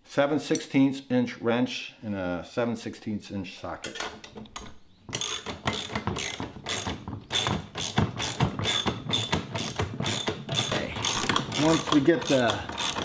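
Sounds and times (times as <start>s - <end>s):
ratchet wrench clicking: 5.1s - 13.0s.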